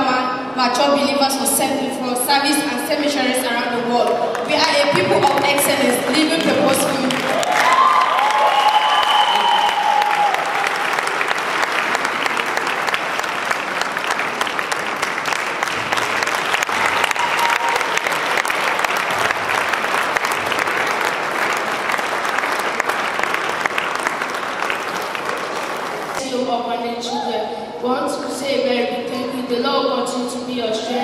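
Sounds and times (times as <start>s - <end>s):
congregation applauding: 4.3s - 26.2s.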